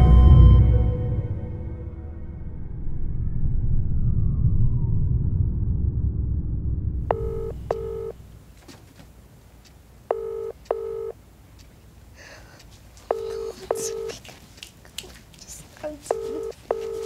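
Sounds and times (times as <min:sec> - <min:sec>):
music: 0:00.0 - 0:03.0
telephone ringback tone: 0:07.1 - 0:08.2, 0:10.1 - 0:11.2, 0:13.1 - 0:14.2, 0:16.1 - 0:17.0.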